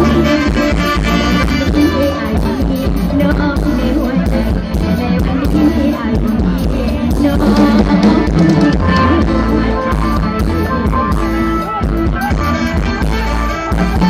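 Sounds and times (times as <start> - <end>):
drum kit beat: 0.0 - 14.0
electric guitar: 0.0 - 14.0.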